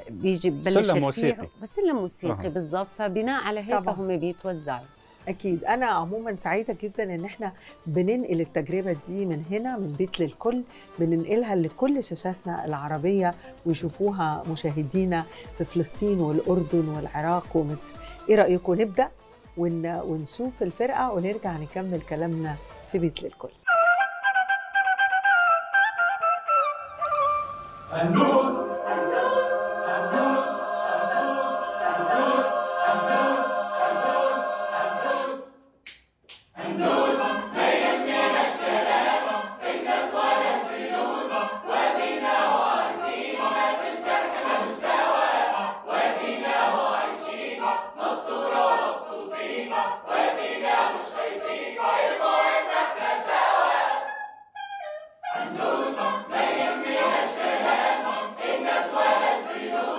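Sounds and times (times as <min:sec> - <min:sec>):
mixed choir singing a cappella: 0:00.0 - 0:04.0, 0:25.5 - 0:35.8, 0:36.5 - 0:59.9.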